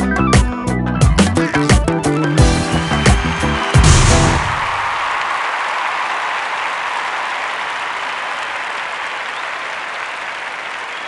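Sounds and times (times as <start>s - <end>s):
crowd applause: 2.4s - 11.0s.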